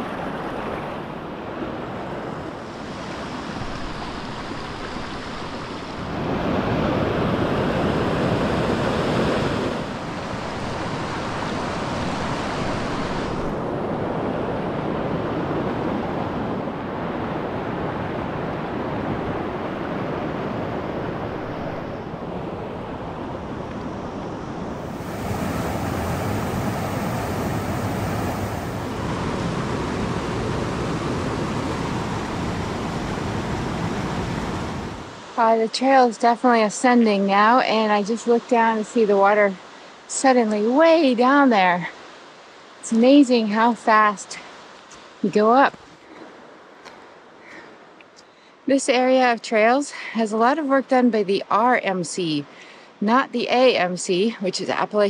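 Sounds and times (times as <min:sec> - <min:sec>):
stream rushing over boulders: 0:02.0 - 0:13.6, 0:24.6 - 0:35.5.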